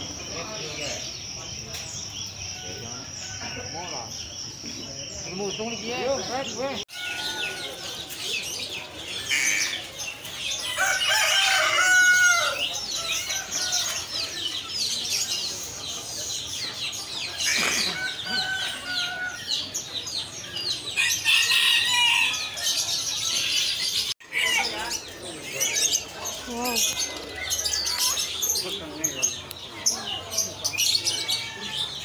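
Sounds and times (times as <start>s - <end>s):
small birds chirping: 0.0s - 32.0s
roosters crowing: 2.3s - 4.3s, 6.1s - 29.1s, 29.8s - 32.0s.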